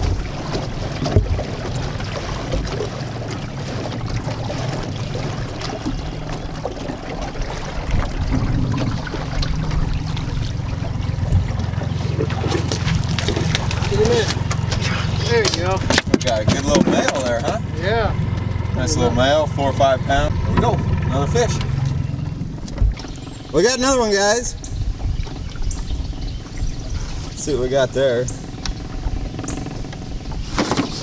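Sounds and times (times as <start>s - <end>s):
outboard motor humming: 0.0s - 31.0s
water noise: 0.0s - 31.0s
wind noise: 24.5s - 27.7s.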